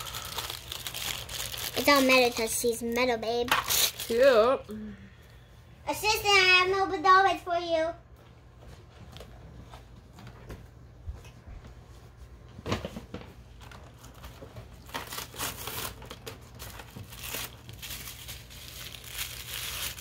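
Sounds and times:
wrappers crinkling and ripping: 0.0s - 4.6s, 13.5s - 20.0s.

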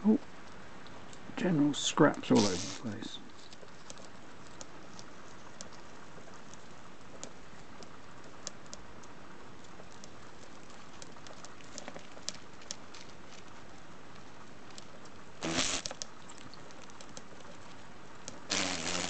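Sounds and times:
steady hiss: 0.0s - 19.0s
beetles scratching on dry leaves: 2.0s - 7.7s, 9.7s - 17.9s.

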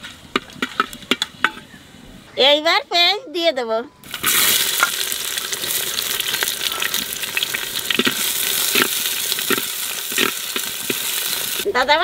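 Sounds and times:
onions sizzling in oil: 4.0s - 11.7s.

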